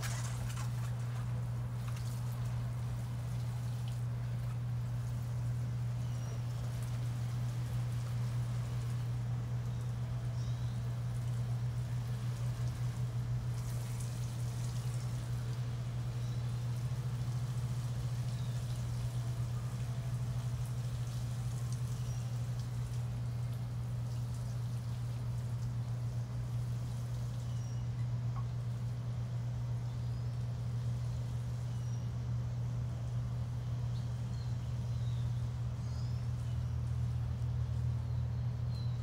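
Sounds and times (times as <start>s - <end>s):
water sprinkling onto plants: 0.0s - 27.6s
low machine hum: 0.0s - 39.0s.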